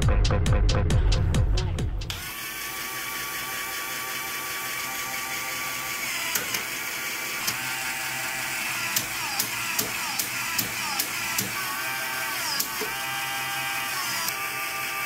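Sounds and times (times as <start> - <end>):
plastic gears whirring: 2.1 - 15.0
sharp plastic clicks: 8.9 - 11.6.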